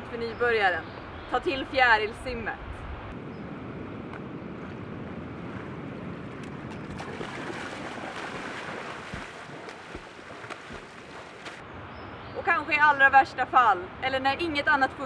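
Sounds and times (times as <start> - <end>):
wind noise on microphone: 2.2 - 11.2
footsteps splashing in shallow water: 4.6 - 11.6.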